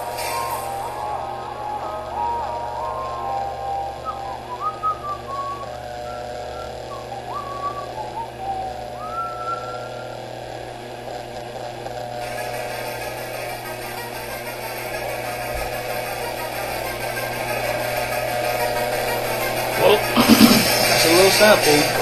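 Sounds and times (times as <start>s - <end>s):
hiss: 0.0s - 2.9s, 12.2s - 22.0s
whistling in sliding notes: 0.0s - 10.3s, 12.2s - 22.0s
steady hum: 0.0s - 22.0s.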